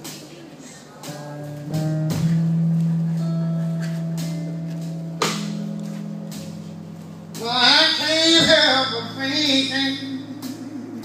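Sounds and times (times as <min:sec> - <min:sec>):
electric guitar notes: 0:01.0 - 0:11.0.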